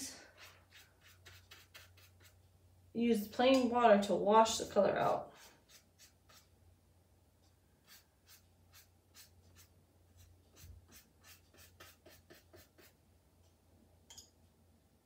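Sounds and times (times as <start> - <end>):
wet brush strokes on paper: 0.3 - 2.4, 4.6 - 6.5, 7.8 - 13.0.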